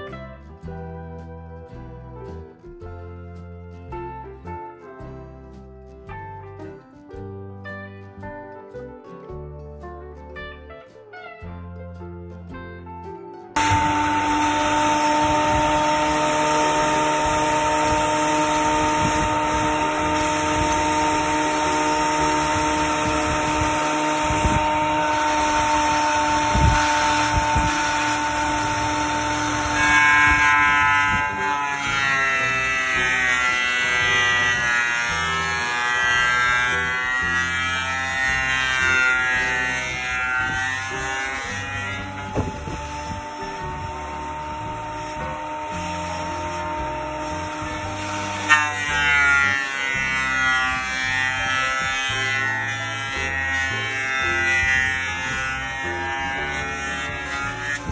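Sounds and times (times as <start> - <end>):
power tool motor buzzing: 13.6 - 57.9.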